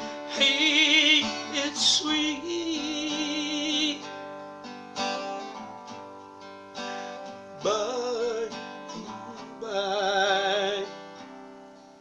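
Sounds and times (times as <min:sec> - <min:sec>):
strummed acoustic guitar: 0:00.0 - 0:12.0.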